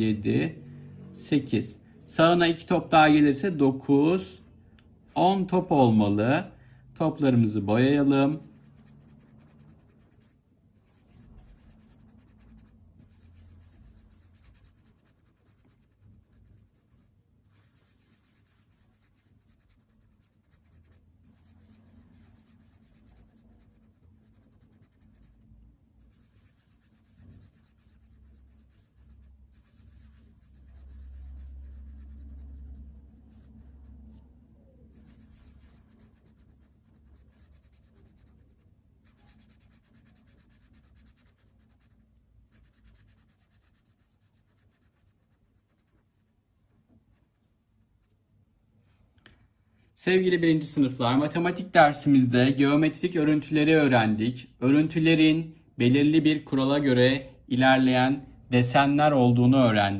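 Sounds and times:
marker scribbling on paper: 7.2 - 46.4.

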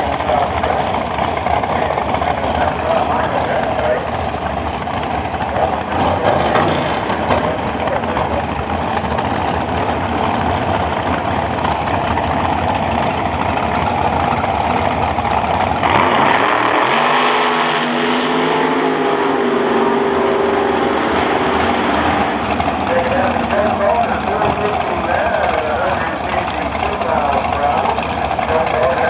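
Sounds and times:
engine rough idle revving: 0.0 - 29.0.

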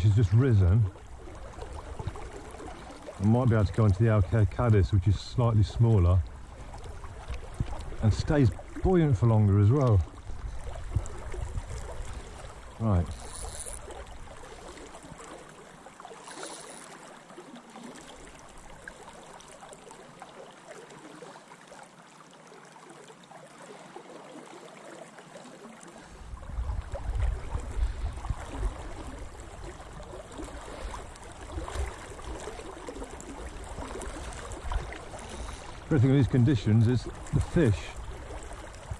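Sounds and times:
wind buffeting microphone: 3.5 - 13.4, 26.2 - 32.1.

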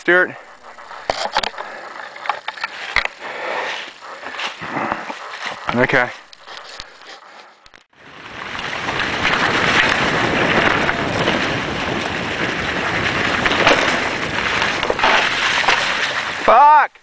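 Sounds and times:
bike rolling over dry leaves: 0.0 - 7.2, 8.0 - 16.8
wind rushing over microphone: 8.0 - 16.5.

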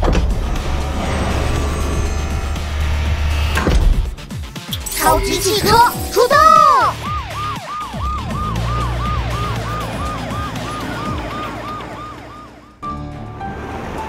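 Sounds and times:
low rumble: 0.0 - 4.1
police siren yelping: 4.8 - 12.8.

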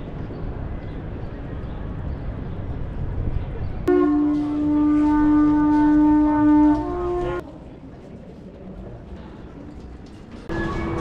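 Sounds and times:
street noise: 0.0 - 11.0
conch shell trumpet note: 3.9 - 7.4.

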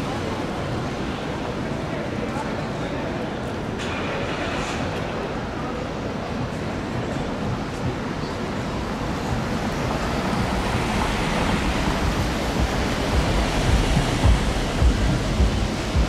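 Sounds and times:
low buffeting thumps: 8.8 - 16.0.

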